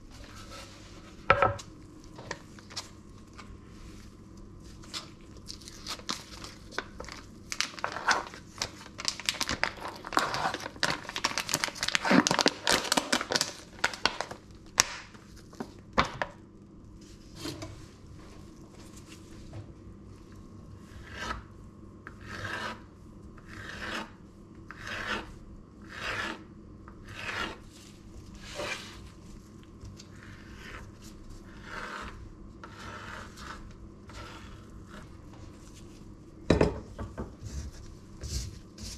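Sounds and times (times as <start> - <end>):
plastic packet crinkling and tearing: 5.3 - 15.1
knife rasping through meat: 22.1 - 26.4, 27.0 - 27.7, 30.1 - 35.1.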